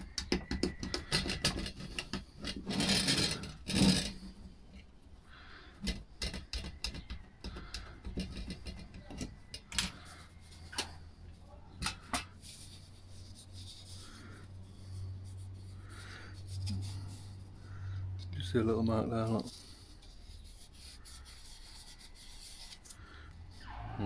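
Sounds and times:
plastic clicks and knocks: 0.0 - 2.7, 5.8 - 10.0.

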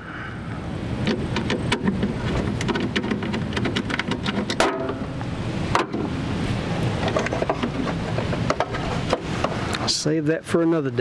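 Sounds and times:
steady low rumble: 0.0 - 11.0
metal and rubber clicks and knocks: 1.0 - 5.1, 5.7 - 6.1, 7.0 - 9.6.

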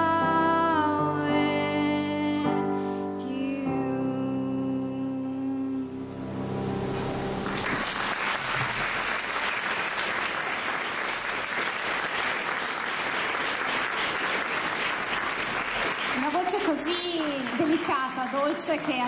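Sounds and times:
audience applauding: 7.4 - 19.0.

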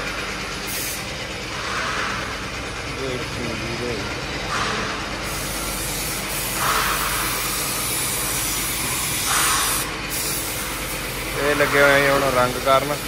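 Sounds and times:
spray gun hissing: 0.7 - 1.0, 5.2 - 13.0.

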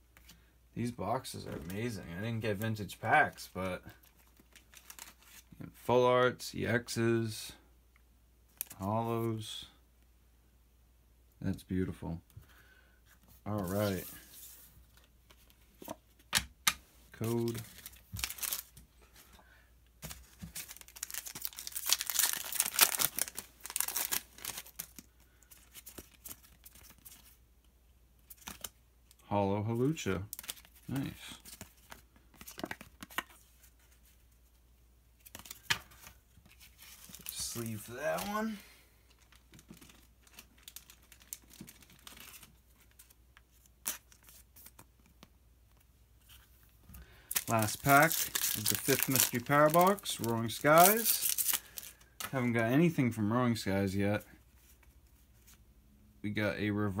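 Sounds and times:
trading cards rustling and clicking: 4.0 - 5.5, 13.5 - 19.3, 20.0 - 27.4, 30.2 - 34.2, 35.2 - 46.5, 47.3 - 52.5
foil pack tearing and crinkling: 20.5 - 25.1, 47.3 - 52.0
cards handled with light clicks: 30.4 - 34.2.

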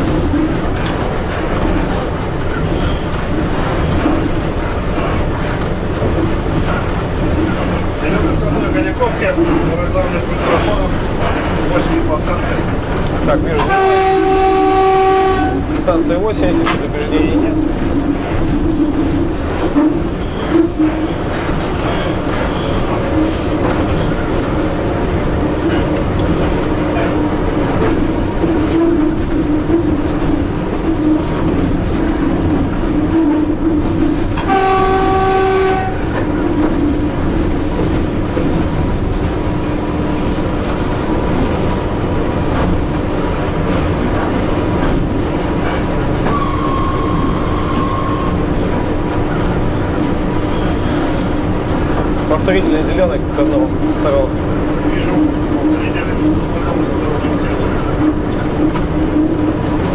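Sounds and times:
electric locomotive running noise: 0.0 - 59.9
train horn: 13.6 - 15.8, 34.4 - 36.4, 46.2 - 48.5.

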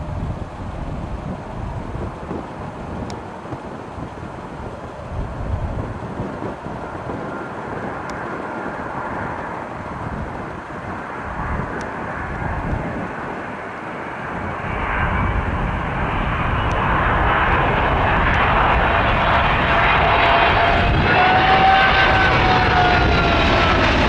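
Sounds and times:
jet airliner engine noise: 0.0 - 24.0
steady engine whine: 0.0 - 24.0.

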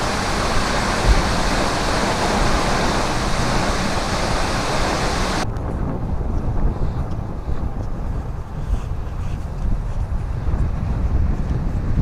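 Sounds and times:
waterfall rushing: 0.0 - 5.4
wind rumble on microphone: 0.0 - 12.0.

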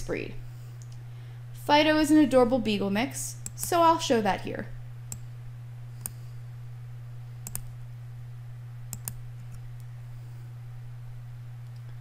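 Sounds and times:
low electrical hum: 0.0 - 12.0
computer mouse clicking: 7.4 - 7.7, 8.9 - 9.6.

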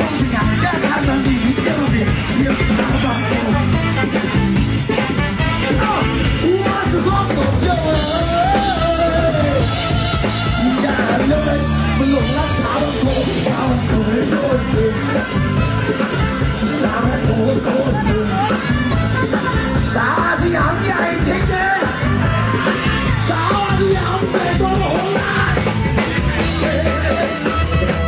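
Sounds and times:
live band with singer: 0.0 - 28.0.

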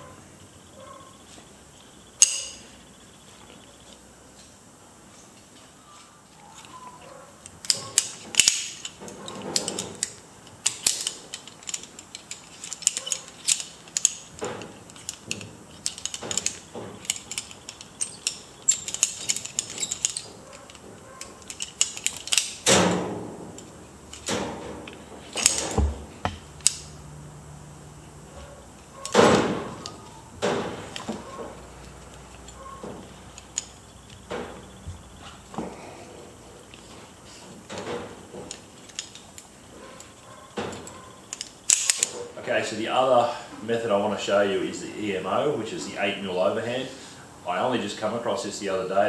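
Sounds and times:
metal carabiners clinking: 2.2 - 2.8, 6.4 - 27.0, 28.3 - 42.4.

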